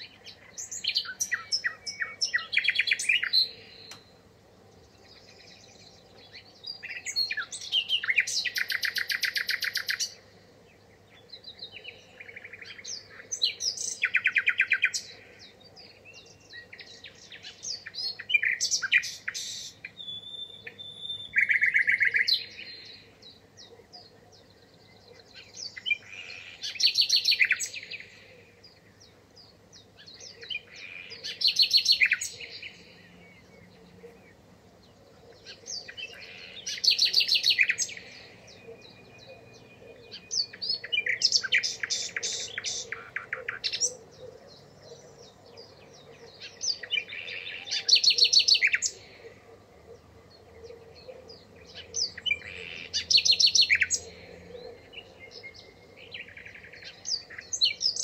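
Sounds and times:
songbird trilling: 0:00.0 - 0:04.1, 0:06.3 - 0:10.2, 0:11.4 - 0:15.5, 0:16.1 - 0:23.2, 0:25.1 - 0:28.6, 0:29.8 - 0:34.4, 0:35.4 - 0:50.0, 0:50.6 - 0:58.0.

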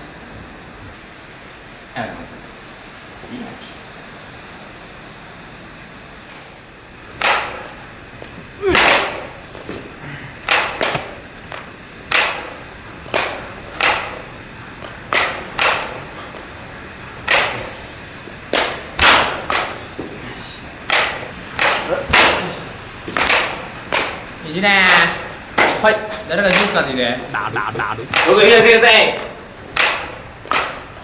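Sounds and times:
baseball bat hitting balls: 0:07.1 - 0:16.5, 0:18.4 - 0:20.1, 0:20.8 - 0:28.9, 0:29.6 - 0:31.0.

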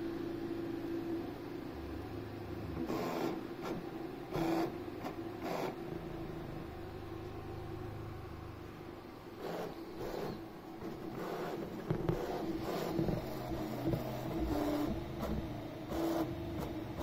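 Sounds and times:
printer motor and fan hum: 0:00.0 - 0:17.0
print head moving rushes: 0:09.3 - 0:17.0.

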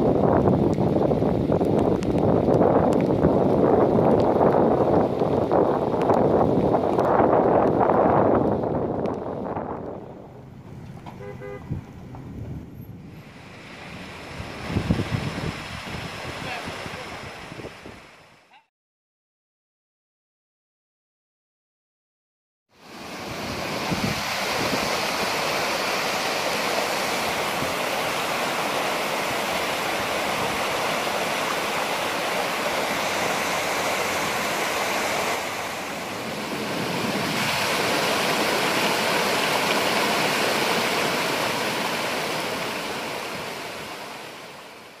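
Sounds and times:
floodwater rushing down rocky cascade: 0:00.0 - 0:09.7, 0:13.2 - 0:18.4, 0:22.8 - 0:45.0.

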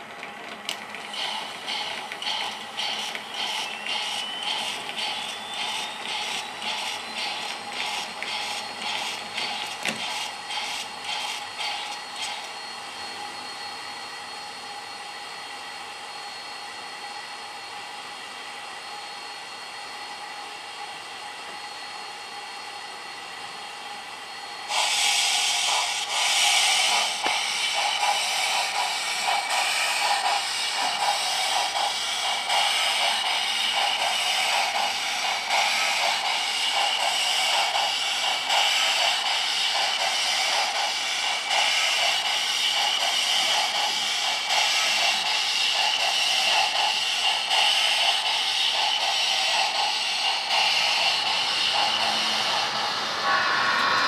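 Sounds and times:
steam hiss with chuffing: 0:00.0 - 0:54.0
rhythmic hissing: 0:01.0 - 0:12.6, 0:24.6 - 0:54.0
steady hum: 0:49.0 - 0:54.0.

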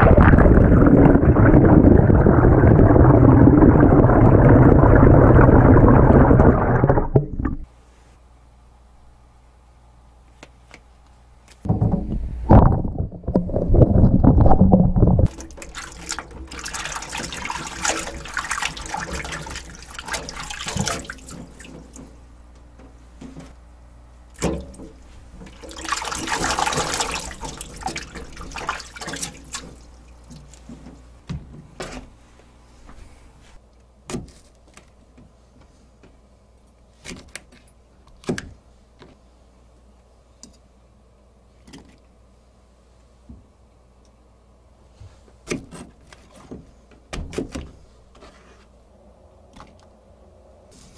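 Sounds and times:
rumbling handling noise: 0:11.6 - 0:16.5
water running into a sink bowl: 0:15.0 - 0:22.1, 0:24.4 - 0:30.4
hands splashing water: 0:15.2 - 0:22.1, 0:24.4 - 0:30.7.

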